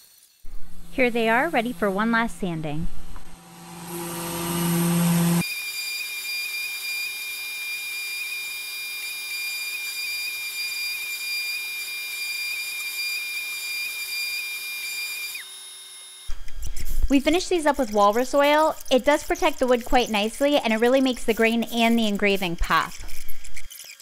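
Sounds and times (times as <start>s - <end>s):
orbit sander whining: 0.4s - 24.0s
low hum: 0.5s - 5.4s.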